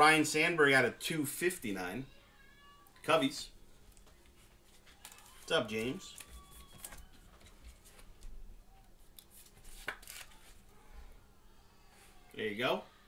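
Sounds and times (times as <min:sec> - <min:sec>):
cards rustling: 0:04.0 - 0:10.6.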